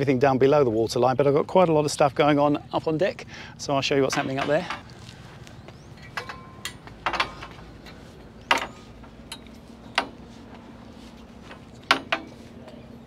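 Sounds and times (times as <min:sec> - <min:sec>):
knocks on metal ladder rungs: 0:04.0 - 0:04.8, 0:06.0 - 0:10.2, 0:11.4 - 0:12.4.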